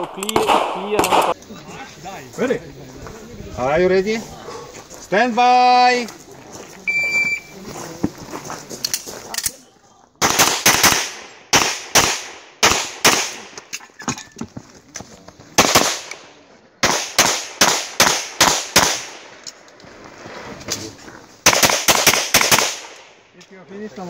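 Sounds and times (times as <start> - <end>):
pistol shots: 0.0 - 1.4, 10.2 - 13.6, 15.6 - 19.4, 21.4 - 23.2.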